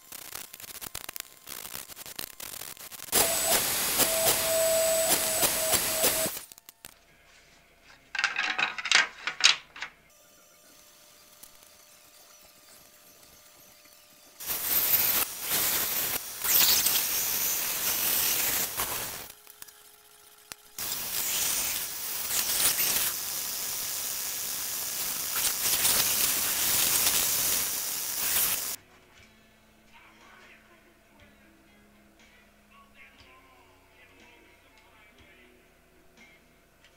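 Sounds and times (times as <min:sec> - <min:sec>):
band saw cutting wood: 0:03.2 - 0:06.4, 0:10.1 - 0:28.8
table saw cutting wood: 0:03.2 - 0:06.4, 0:10.1 - 0:28.8.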